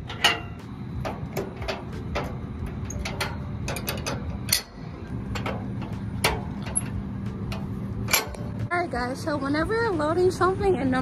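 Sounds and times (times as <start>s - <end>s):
metallic clicks and clanks: 0.0s - 8.7s
steady low hum: 0.0s - 11.0s.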